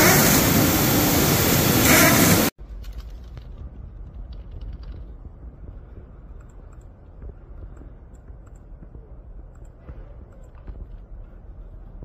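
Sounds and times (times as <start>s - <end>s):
low background rumble: 2.4s - 12.0s
computer keyboard clicks: 4.3s - 5.1s.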